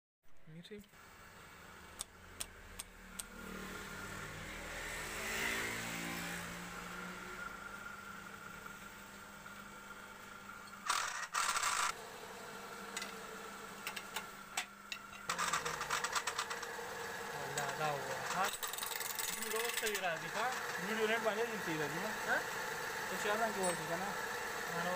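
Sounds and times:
wood lathe motor humming: 10.8s - 14.5s, 15.2s - 24.9s
tool clattering on spinning wood: 15.1s - 16.7s.

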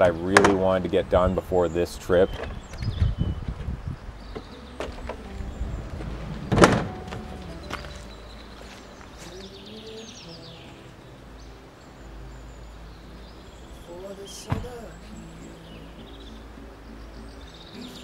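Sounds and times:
soft background music: 3.7s - 18.0s.

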